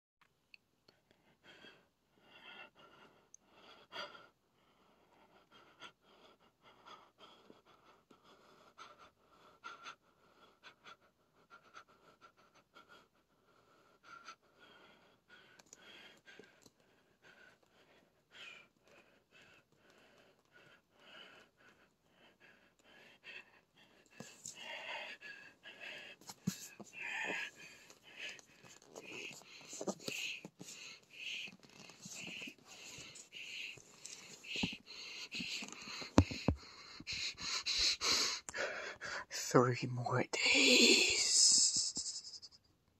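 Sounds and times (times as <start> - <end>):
hand tapping cardboard box: 36.1 - 36.6.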